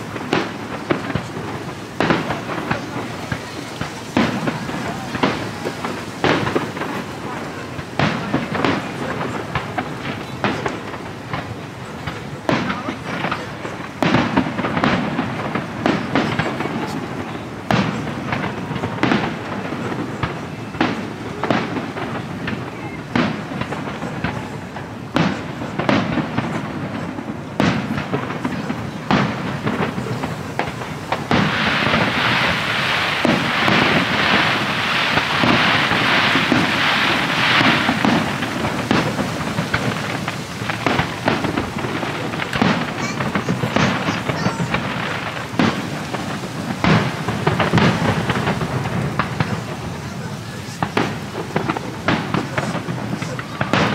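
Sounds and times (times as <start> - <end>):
dense firework crackling: 0.0 - 53.9
firework shells bursting: 0.0 - 53.9.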